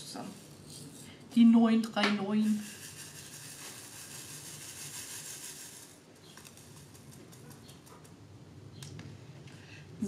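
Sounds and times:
plastic beads pattering in tray: 2.4 - 7.6.

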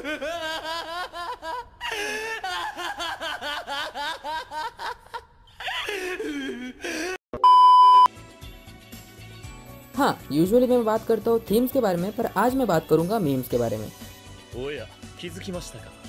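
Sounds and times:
man cackling with laughter: 0.0 - 7.2
loud steady beep tone: 7.4 - 8.1.

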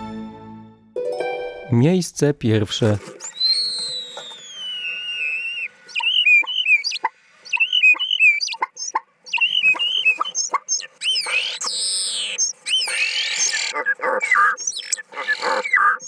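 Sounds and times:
starling singing: 3.2 - 16.0.

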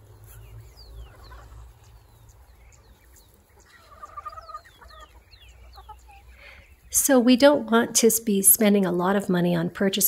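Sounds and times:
chickens peeping: 0.0 - 7.1.

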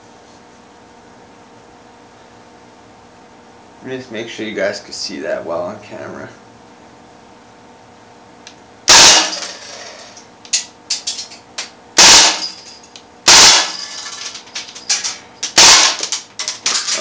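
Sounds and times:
bb rifle firing bursts: 8.9 - 9.9, 12.0 - 12.6, 13.3 - 14.0, 15.4 - 17.0.

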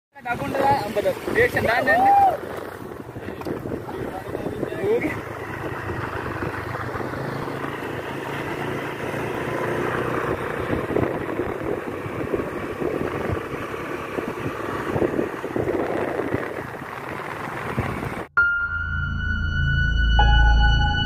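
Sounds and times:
motorcycle riding: 0.2 - 18.4
wind buffeting microphone: 0.3 - 7.7, 10.0 - 18.3.

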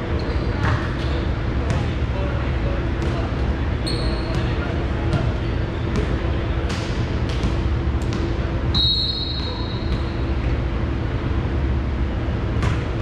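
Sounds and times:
ball bouncing on gym floor: 0.5 - 2.0, 3.0 - 8.5, 12.6 - 13.0
referee's whistle blast: 8.7 - 9.8.

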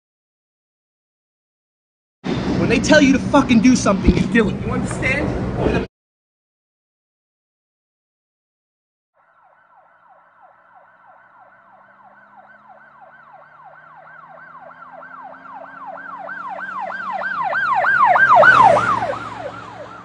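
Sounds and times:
vehicle passing rush: 2.2 - 5.9, 9.2 - 20.0
emergency siren yelping: 9.2 - 20.0.

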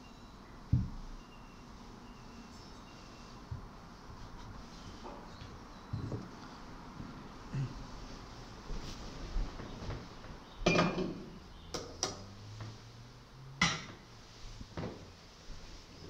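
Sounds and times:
metal and glass vessels clinking: 10.6 - 11.3.

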